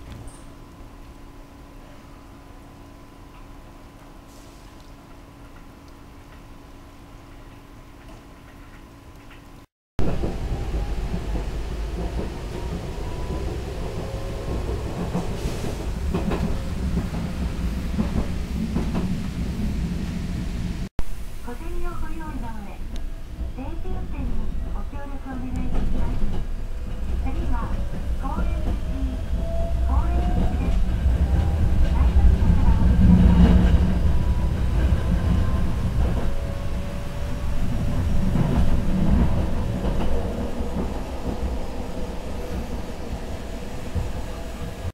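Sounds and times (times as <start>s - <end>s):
streetcar rumble: 10.0s - 44.9s.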